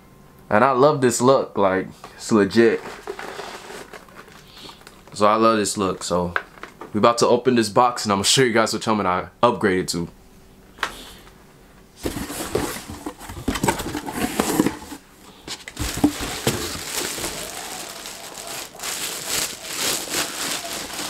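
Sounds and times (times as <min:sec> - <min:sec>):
plastic bag crinkling: 0:02.7 - 0:05.2, 0:12.1 - 0:21.0.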